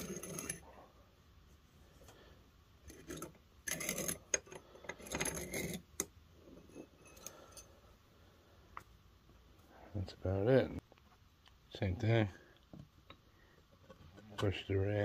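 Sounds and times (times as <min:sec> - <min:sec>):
file rasping metal ring: 0:00.0 - 0:00.6, 0:02.9 - 0:05.9.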